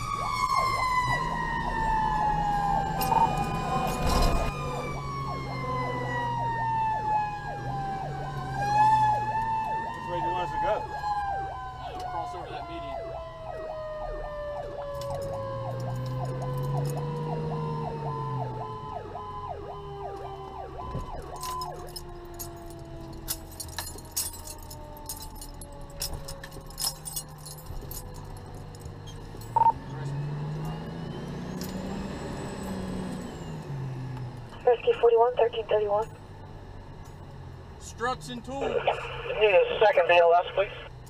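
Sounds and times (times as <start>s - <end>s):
electronic siren yelping: 0.0s - 21.9s
mechanical siren winding down: 0.0s - 23.0s
diesel engine: 0.0s - 41.0s.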